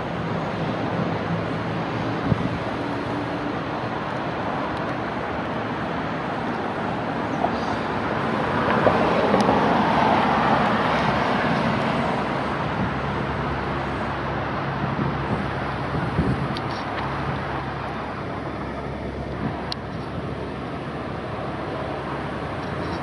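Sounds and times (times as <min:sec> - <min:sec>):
car passing: 0:00.0 - 0:23.0.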